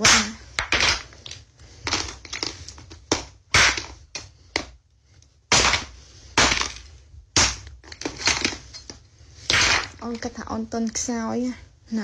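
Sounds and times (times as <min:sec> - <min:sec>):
glass breaking: 0:00.0 - 0:01.1, 0:05.5 - 0:08.9, 0:09.5 - 0:10.2
phones smashed on wooden floor: 0:00.0 - 0:04.7, 0:05.5 - 0:10.0.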